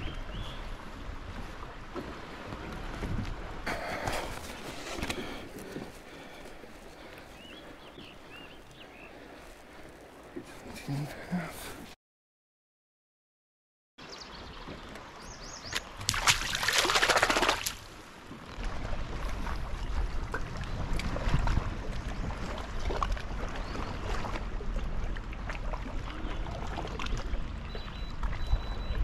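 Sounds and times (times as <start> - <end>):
wind rumble on microphone: 0.0 - 9.2, 18.0 - 29.0
water lapping against kayak: 0.0 - 11.9, 14.4 - 29.0.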